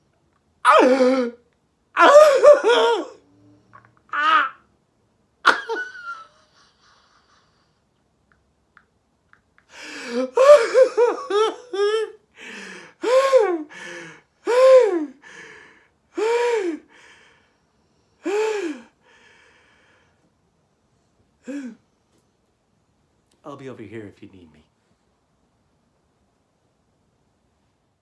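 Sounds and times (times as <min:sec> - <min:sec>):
cartoon voice sobbing: 0:00.7 - 0:01.4, 0:02.0 - 0:03.2, 0:04.1 - 0:04.6, 0:10.0 - 0:12.2.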